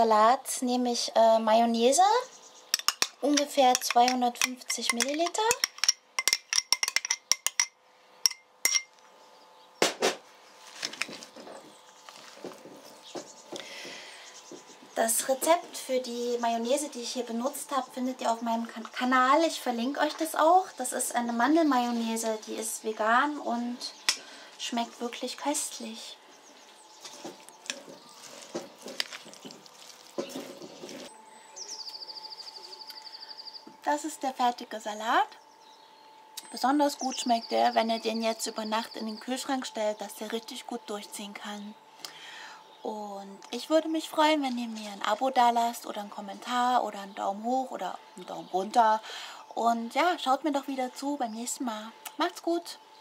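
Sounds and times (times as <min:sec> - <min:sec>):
metal utensil clicking on glass: 0:02.8 - 0:07.7
spoon stirring wet salad: 0:02.8 - 0:07.7, 0:27.0 - 0:31.1
metal spoon clinking on glass jar: 0:02.8 - 0:09.0
wet squishing and rustling: 0:27.0 - 0:31.1.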